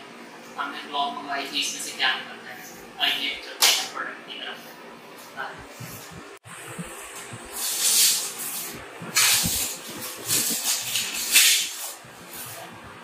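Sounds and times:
plastic wrapping crinkling and tearing: 0:07.6 - 0:12.0.

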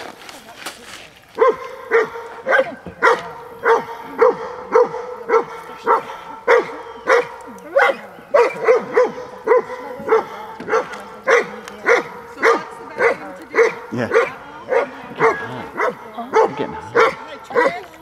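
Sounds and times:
large dog barking: 0:01.4 - 0:18.0.

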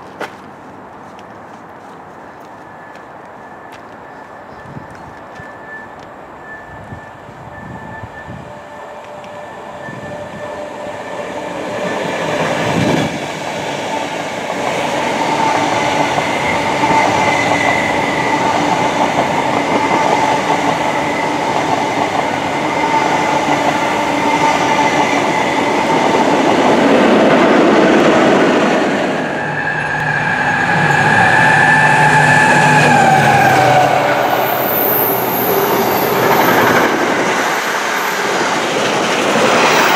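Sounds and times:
freight train passing: 0:00.0 - 0:39.9
electric train rushing past: 0:02.4 - 0:39.9
train motor whine: 0:03.5 - 0:13.2.

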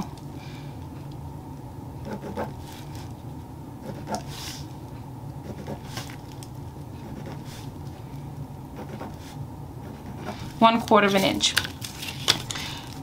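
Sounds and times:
steady low hum: 0:00.0 - 0:13.0
pencil scratching on paper: 0:02.0 - 0:02.9, 0:03.8 - 0:04.6, 0:05.4 - 0:06.1, 0:07.0 - 0:07.7, 0:08.8 - 0:10.5.

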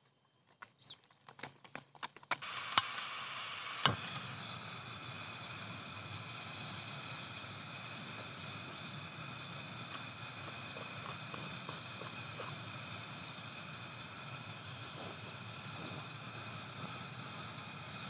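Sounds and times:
bird chirping: 0:00.8 - 0:01.1, 0:05.0 - 0:05.8, 0:16.2 - 0:18.0
steady rain hiss: 0:02.4 - 0:18.0.

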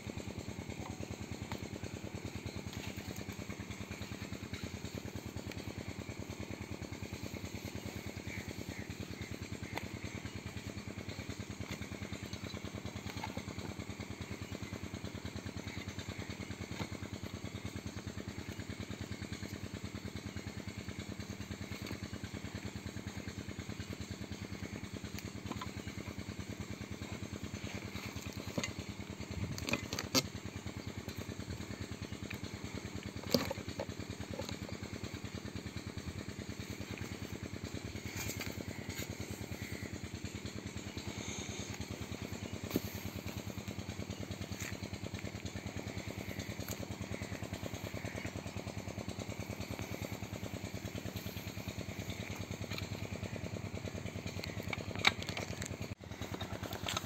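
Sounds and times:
small diesel engine running: 0:00.0 - 0:57.0.

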